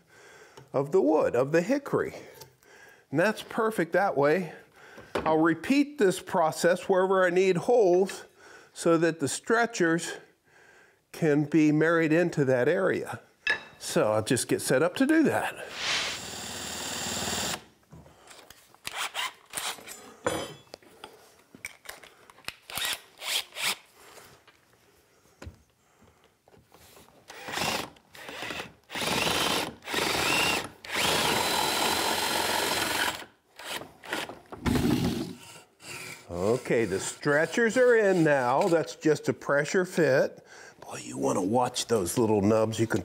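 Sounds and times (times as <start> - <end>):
cordless drill boring into wood: 15.8 - 17.7, 18.9 - 19.8, 22.7 - 23.8, 27.3 - 38.7.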